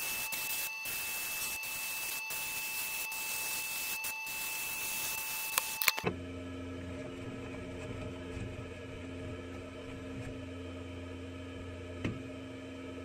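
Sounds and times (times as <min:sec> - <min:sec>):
low mechanical hum: 0:00.0 - 0:13.0
sharp click: 0:05.2 - 0:06.1.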